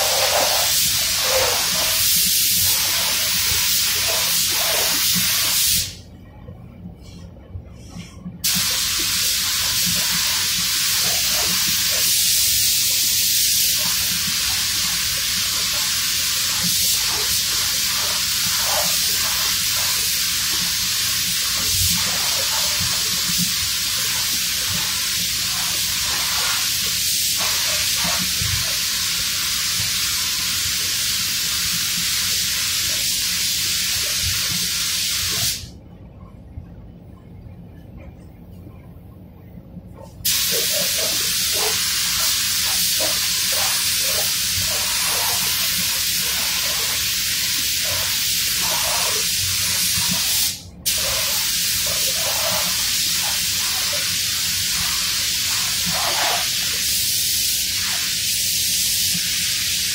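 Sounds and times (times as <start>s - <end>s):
paint spray gun hissing: 0.0s - 6.0s, 8.4s - 35.7s, 40.2s - 59.9s
low steady hum: 5.9s - 9.1s, 35.7s - 45.0s.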